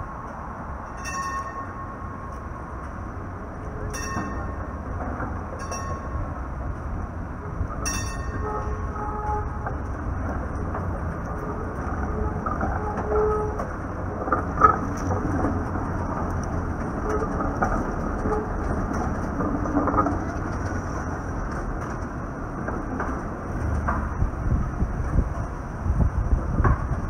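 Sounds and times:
streetcar wheels rumbling: 0:00.0 - 0:27.0
wheels squealing: 0:07.5 - 0:25.3.

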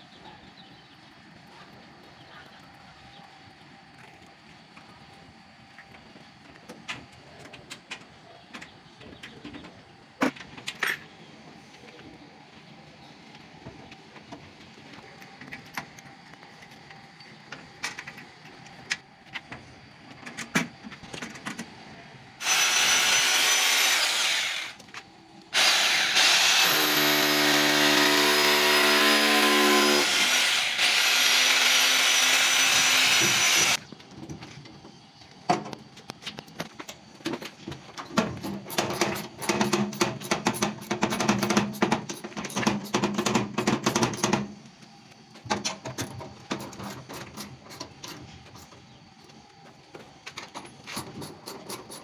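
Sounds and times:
electric drill boring into wall: 0:22.4 - 0:24.8, 0:25.5 - 0:33.8.

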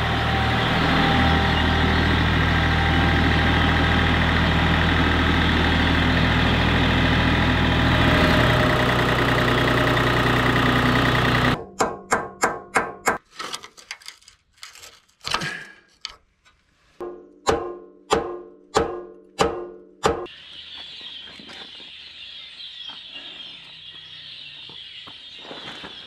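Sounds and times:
hammer striking metal: 0:11.6 - 0:13.2, 0:17.0 - 0:20.3.

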